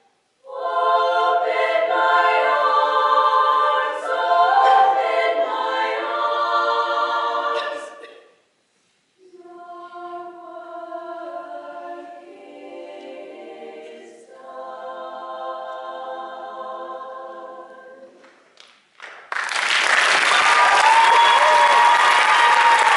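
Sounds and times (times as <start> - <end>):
women's choir singing: 0.4 - 8.2, 9.2 - 18.2.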